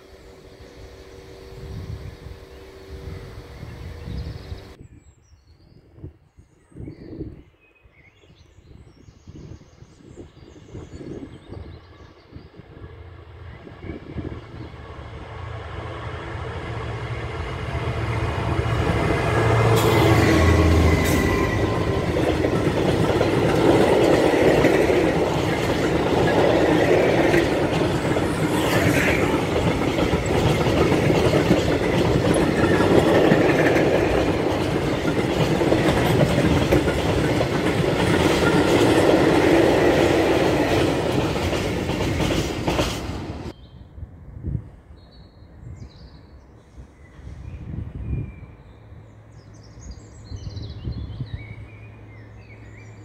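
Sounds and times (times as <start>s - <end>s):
diesel locomotive passing: 0.0s - 4.8s, 10.6s - 43.6s, 46.3s - 53.0s
train wagons rumbling: 12.9s - 43.6s
wheels knocking: 21.4s - 43.4s.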